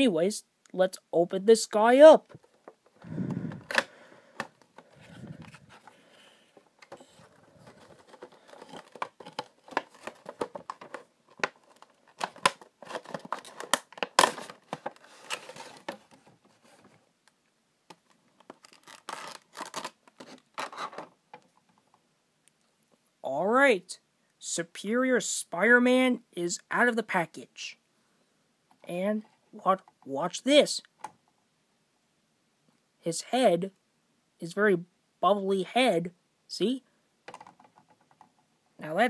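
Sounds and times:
cardboard and plastic crinkling: 2.3s - 17.1s, 17.9s - 21.5s.

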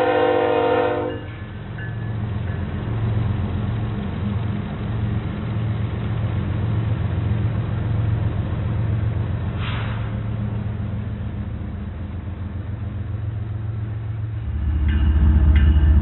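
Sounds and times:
diesel locomotive engine drone: 0.0s - 16.0s
short hiss: 9.6s - 10.2s.

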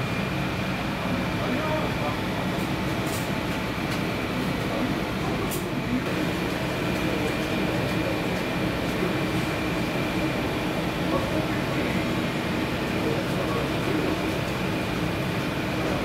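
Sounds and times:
constant hum and rumble: 0.0s - 16.0s.

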